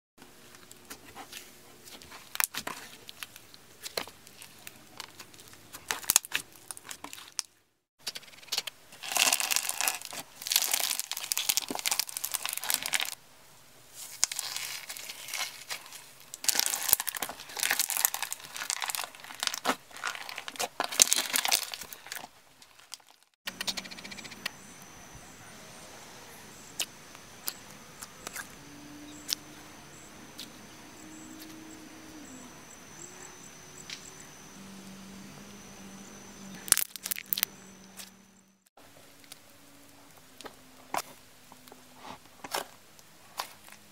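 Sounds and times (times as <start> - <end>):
crunchy slime crackling: 1.2 - 7.5, 8.9 - 13.2, 14.0 - 23.4, 26.8 - 29.4, 36.6 - 38.2
steady high tone: 23.5 - 38.7.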